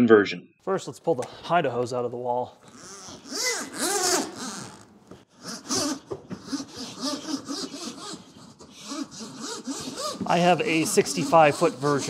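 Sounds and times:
hose squeaks: 0:02.6 - 0:04.9, 0:05.5 - 0:12.0
hose rubbing and swishing: 0:05.4 - 0:12.0.

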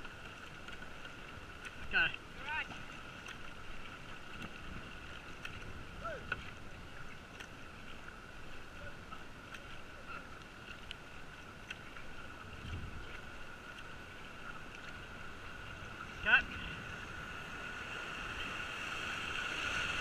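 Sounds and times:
kayak paddle splashing water: 0:00.0 - 0:20.0.

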